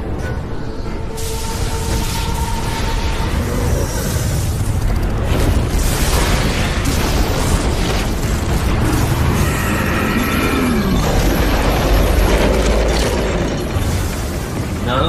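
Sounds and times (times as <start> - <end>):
dark musical score: 0.0 - 15.0.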